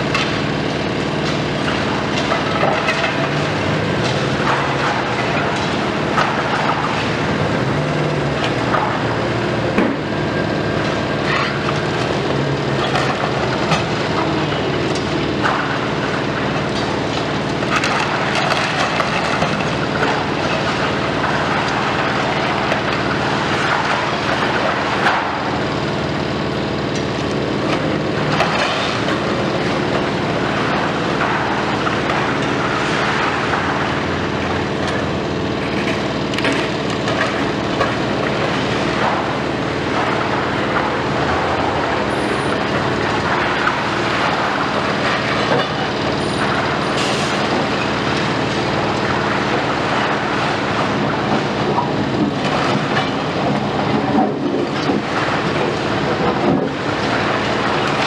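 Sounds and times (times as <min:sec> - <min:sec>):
masonry crunching and falling: 0:00.0 - 0:25.9
diesel engines running under load: 0:00.0 - 0:58.0.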